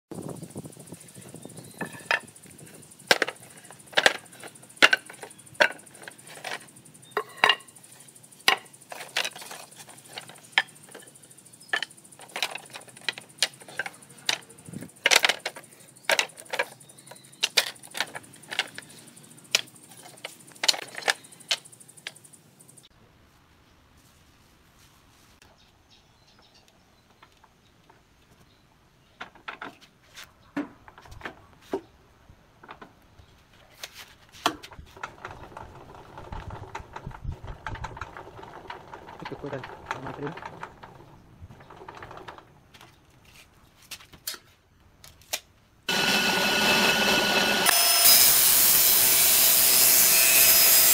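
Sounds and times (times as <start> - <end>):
wooden boards knocking: 3.1 - 6.6, 8.4 - 11.0.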